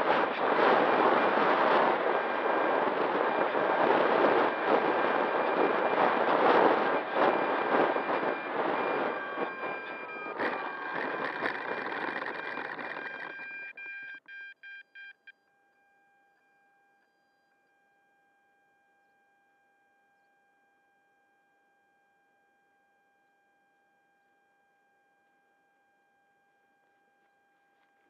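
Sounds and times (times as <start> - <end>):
wind rush: 0.0 - 13.0
electric motor noise: 0.0 - 13.6
falling whine: 0.0 - 13.8
faint electronic whine: 0.0 - 22.6.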